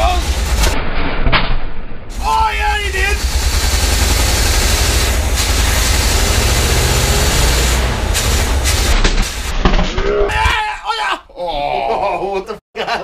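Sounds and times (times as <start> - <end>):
engine running rough: 0.0 - 0.8, 2.1 - 9.7.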